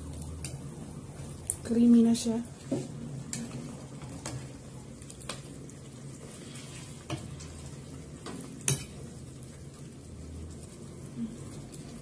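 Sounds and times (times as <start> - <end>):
curry simmering with soft sizzle: 0.0 - 12.0
ladle scraping against a pan: 6.2 - 9.0.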